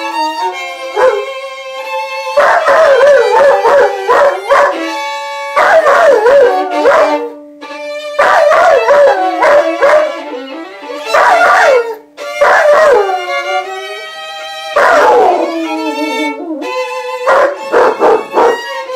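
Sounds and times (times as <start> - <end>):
violin held notes: 0.0 - 5.6, 6.2 - 18.9
dog howling: 0.9 - 1.3, 2.4 - 5.0, 5.6 - 7.4, 8.2 - 14.1, 14.7 - 18.7.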